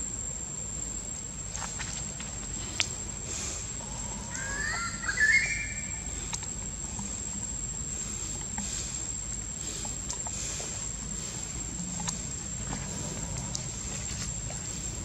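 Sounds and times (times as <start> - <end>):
steady high-pitched whine: 0.0 - 15.0
rising whistle-like animal call: 4.3 - 6.1.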